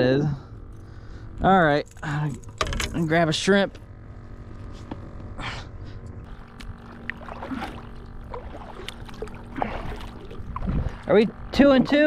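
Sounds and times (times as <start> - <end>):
low steady rumble: 0.0 - 12.0
knocks and clicks of gear: 1.8 - 3.9.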